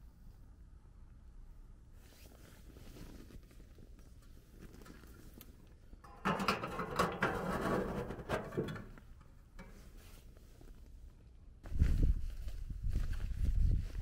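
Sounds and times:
metal stove door clanking shut: 6.1 - 9.0.

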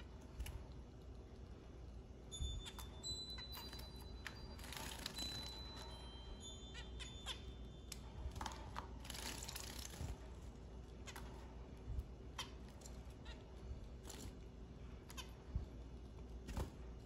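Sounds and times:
finches chirping: 2.3 - 8.1.

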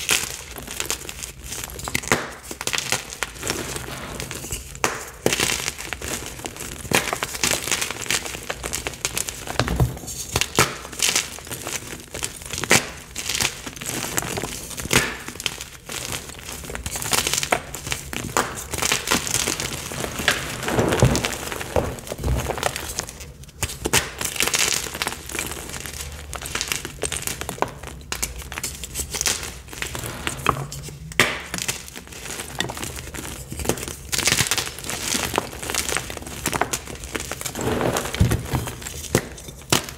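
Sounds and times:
chalk blocks crunching: 10.0 - 26.9, 27.5 - 39.9.

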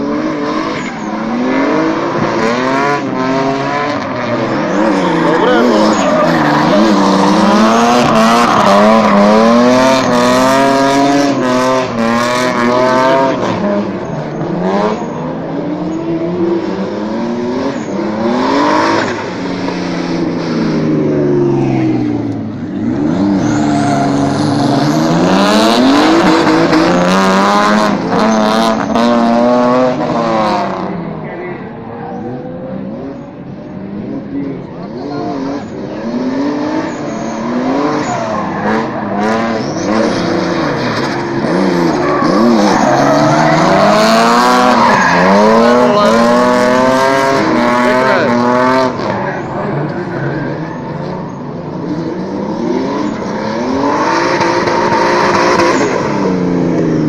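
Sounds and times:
car engines revving: 0.0 - 57.0
tyres screeching: 4.0 - 11.4, 36.8 - 51.8.

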